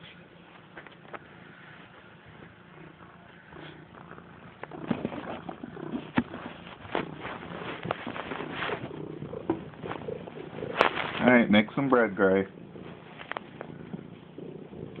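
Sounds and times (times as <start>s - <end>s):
cat purring: 1.0s - 15.0s
clothes rustling: 4.8s - 11.8s.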